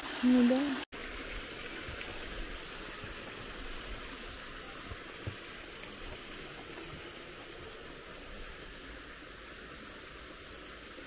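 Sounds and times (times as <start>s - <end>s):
waterfall and stream rushing: 0.0s - 11.0s.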